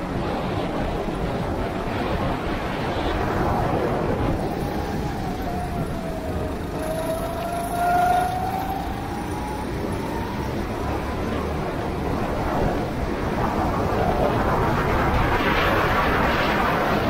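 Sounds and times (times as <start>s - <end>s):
go-kart engine running: 4.3s - 13.4s.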